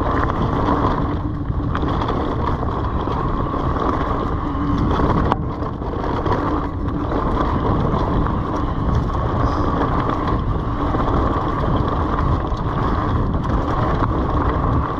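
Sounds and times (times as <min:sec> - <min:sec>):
constant hum: 0:00.0 - 0:14.9
tyres rolling over dirt trail: 0:00.0 - 0:14.9
wind on microphone: 0:00.0 - 0:14.9.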